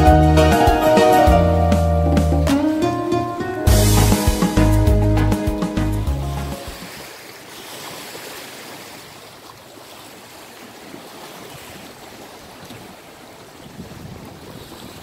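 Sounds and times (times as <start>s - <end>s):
waves washing against shore: 5.4s - 15.0s
wind buffeting microphone: 13.6s - 15.0s.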